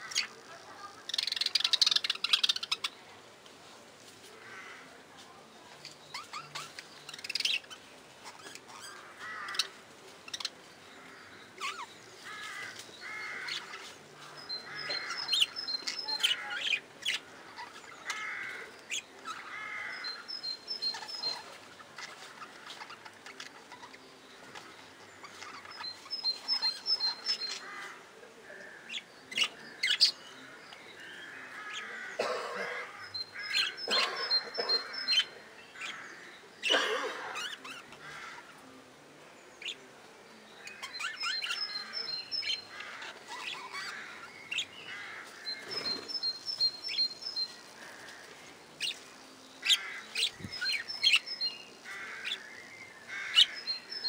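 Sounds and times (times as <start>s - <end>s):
budgerigars chattering: 14.4s - 24.0s, 31.6s - 38.6s, 40.6s - 48.1s, 49.6s - 54.0s.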